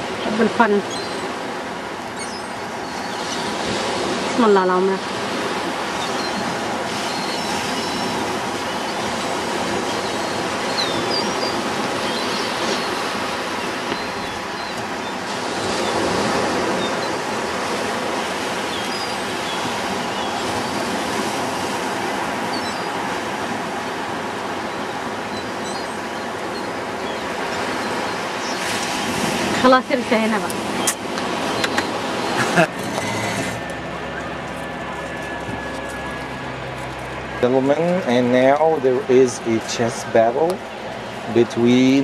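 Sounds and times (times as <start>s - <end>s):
ocean surf breaking: 0.0s - 42.0s
faint high bird calls: 2.1s - 3.6s, 6.0s - 9.1s.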